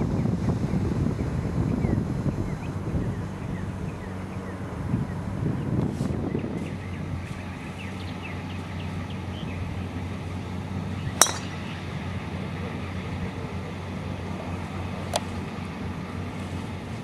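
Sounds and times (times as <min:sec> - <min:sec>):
golf driver striking ball: 0:11.2 - 0:11.8.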